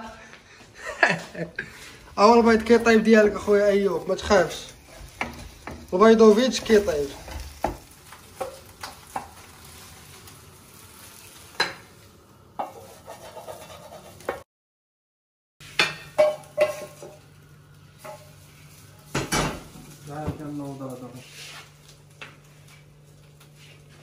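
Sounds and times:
faint sizzle: 0.0s - 14.4s, 15.6s - 24.0s
wooden spoon scraping a pan: 1.6s - 10.1s, 12.6s - 14.4s, 15.6s - 17.2s, 21.2s - 21.8s.

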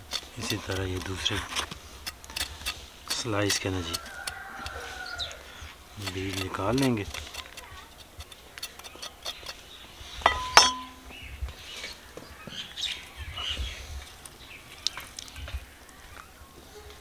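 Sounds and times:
clink on metal bowl: 10.3s - 11.0s.

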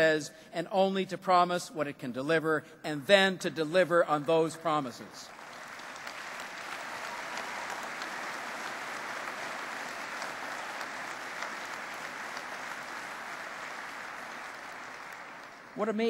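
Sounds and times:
audience applause: 5.3s - 15.8s.

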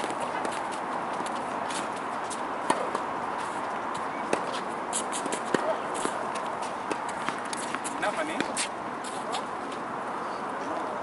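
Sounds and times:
tennis ball hit by rackets: 2.6s - 3.1s, 5.2s - 6.2s.

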